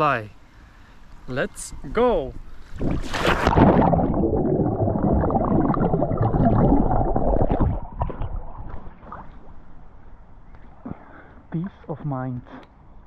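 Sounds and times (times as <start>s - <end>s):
water splashing and gurgling: 2.8s - 9.9s.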